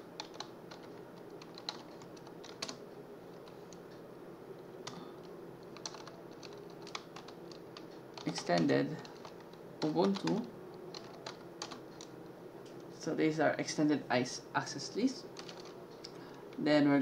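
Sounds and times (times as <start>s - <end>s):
faint steady hum: 0.0s - 17.0s
keyboard typing: 0.2s - 3.8s, 4.8s - 12.1s, 15.4s - 16.1s.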